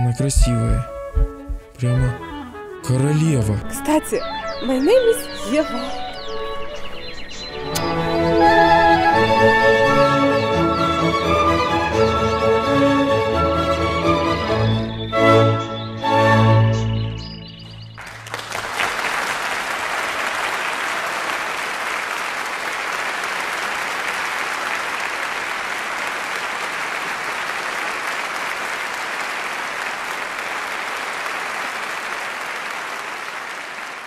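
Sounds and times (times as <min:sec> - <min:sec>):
audience applauding: 0:18.0 - 0:34.0.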